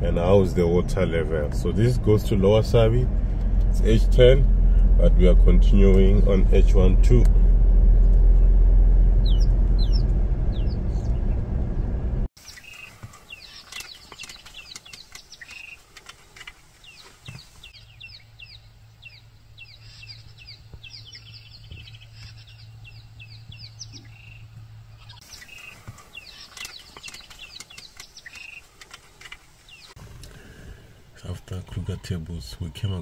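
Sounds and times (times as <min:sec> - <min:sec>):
steady low hum: 0:00.0 - 0:12.3
birds chirping: 0:00.0 - 0:33.0.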